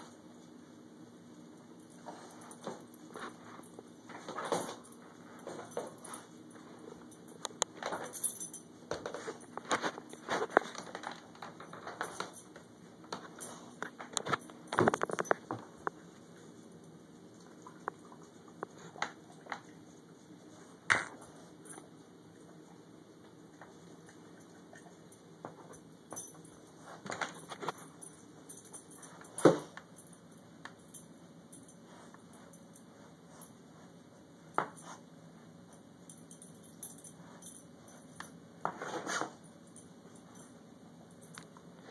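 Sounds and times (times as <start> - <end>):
dog eating from bowl: 1.9 - 31.2.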